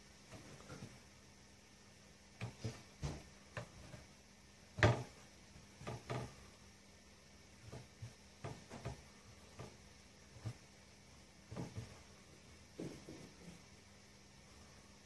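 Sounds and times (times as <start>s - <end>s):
hands tapping dough on wood: 4.7s - 6.4s, 7.6s - 10.6s.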